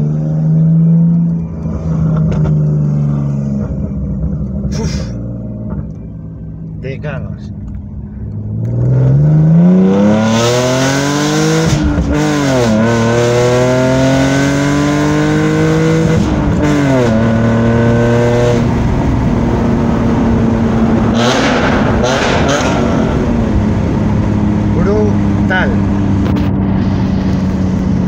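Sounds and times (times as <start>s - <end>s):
car engine accelerating through gears: 7.7s - 28.0s.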